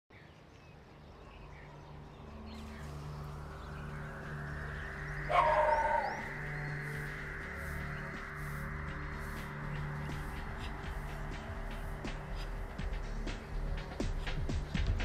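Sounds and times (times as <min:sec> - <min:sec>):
low steady hum: 0:00.4 - 0:15.0
hiss: 0:06.2 - 0:14.8.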